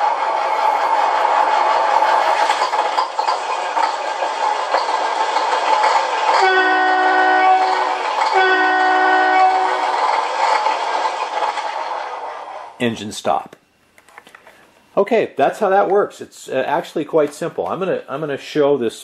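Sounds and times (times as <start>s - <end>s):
truck horn blasts: 6.4s - 9.8s.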